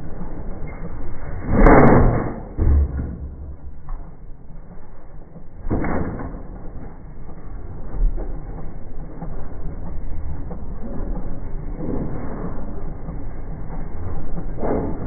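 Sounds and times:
explosion rammer bang: 1.4 - 3.9.

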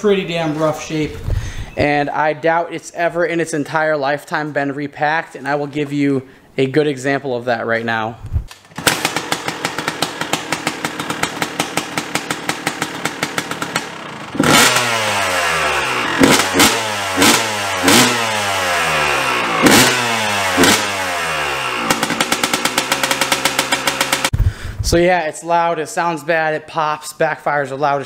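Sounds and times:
dirt bike engine idling and revving: 8.8 - 24.4.

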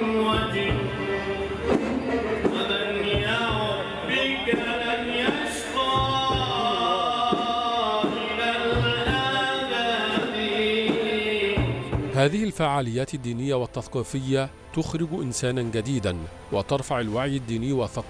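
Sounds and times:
man singing devotional song: 0.0 - 1.6, 2.4 - 13.6
drum beat: 1.7 - 12.4.

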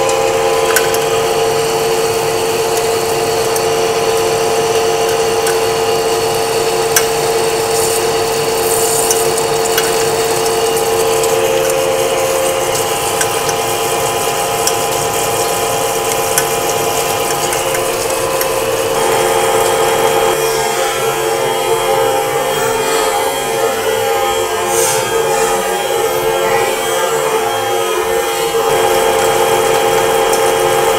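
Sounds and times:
hot chips ticking: 0.0 - 20.4
metal lathe cutting steel: 0.0 - 30.9.

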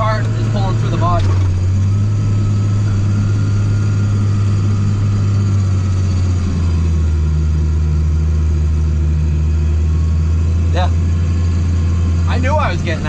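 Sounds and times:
tractor diesel engine running: 0.0 - 13.0.

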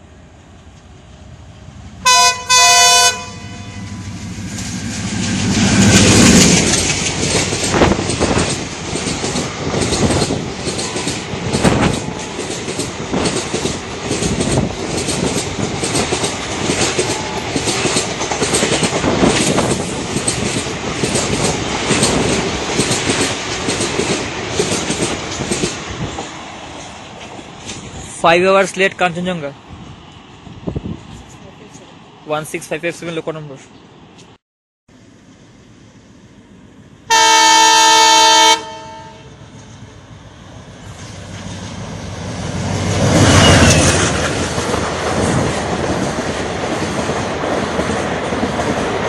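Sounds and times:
diesel locomotive passing: 0.0 - 34.2, 35.0 - 49.0
locomotive horn: 2.0 - 4.0, 37.1 - 39.4
train wheels clickety-clack: 4.3 - 28.1, 40.8 - 49.0.

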